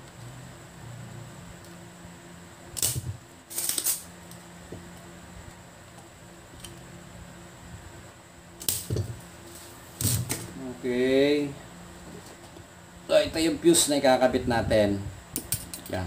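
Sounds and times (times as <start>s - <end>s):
faint steady hum: 0.0s - 16.0s
desoldering pump snapping: 2.7s - 4.4s, 8.6s - 9.1s.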